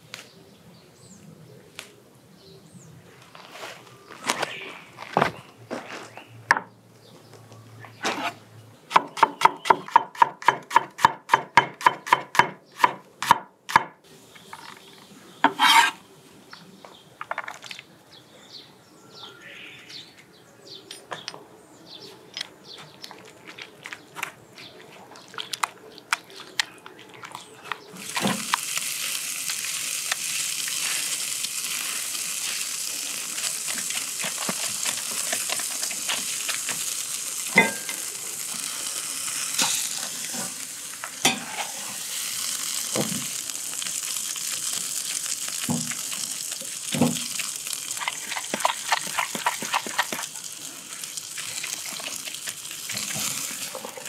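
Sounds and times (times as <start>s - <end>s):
steak sizzling on a grill: 28.0s - 54.0s.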